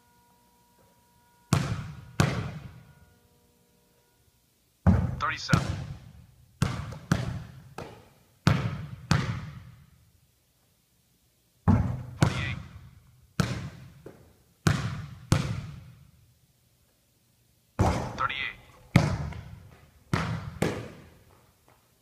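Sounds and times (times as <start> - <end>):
basketball bouncing on gym floor: 1.5 - 2.9, 4.8 - 10.0, 11.6 - 16.2, 17.8 - 18.2, 18.9 - 21.4.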